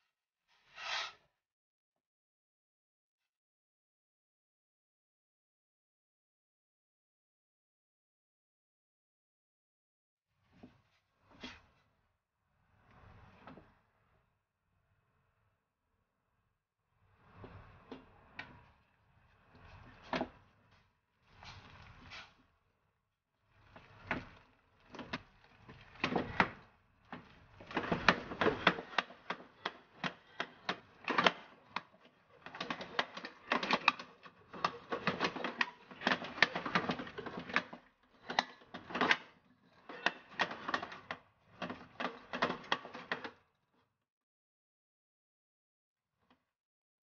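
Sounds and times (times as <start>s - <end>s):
wooden spatula beating dough in pot: 23.7s - 39.2s.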